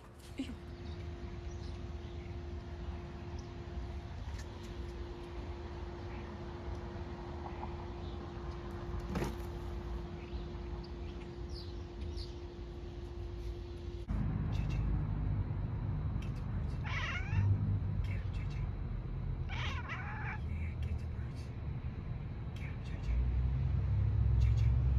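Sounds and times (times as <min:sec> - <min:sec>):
steady low hum: 0:00.0 - 0:24.9
cat meowing: 0:16.8 - 0:17.5, 0:19.5 - 0:20.4.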